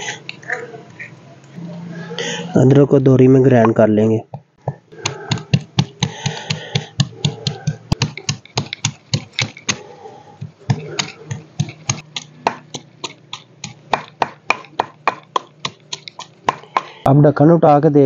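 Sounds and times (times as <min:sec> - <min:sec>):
wooden pestle pounding in mortar: 0:04.7 - 0:17.1.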